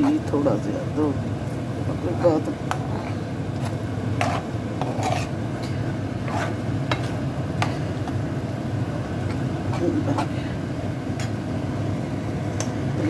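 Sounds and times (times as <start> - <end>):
steady low hum: 0.0 - 13.0
metal spoon scraping frying pan: 2.7 - 7.2.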